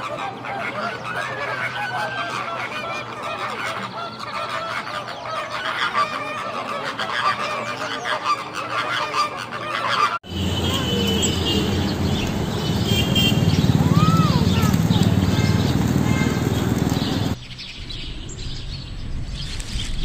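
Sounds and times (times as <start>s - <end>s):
flamingos honking: 0.0s - 17.4s
pigeons feeding and flapping: 10.7s - 17.4s.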